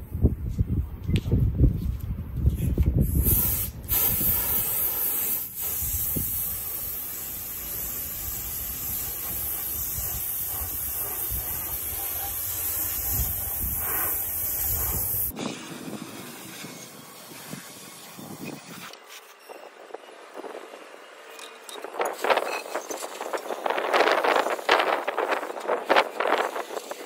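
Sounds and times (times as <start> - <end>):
spray gun air hiss: 3.0 - 18.6.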